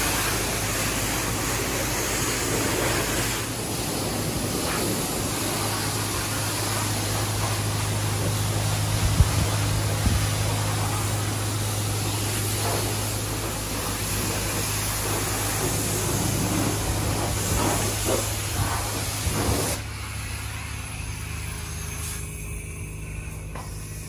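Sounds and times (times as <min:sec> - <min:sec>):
pressure washer spraying water: 0:00.0 - 0:24.0
low hum: 0:00.1 - 0:24.0.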